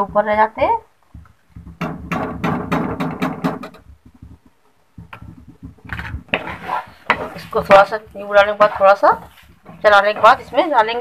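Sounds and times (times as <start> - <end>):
spatula scraping peas in pan: 3.8 - 11.0.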